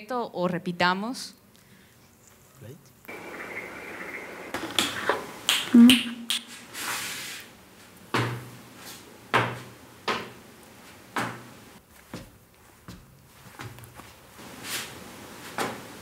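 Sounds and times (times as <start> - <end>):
slow footsteps with thuds: 9.3 - 14.5.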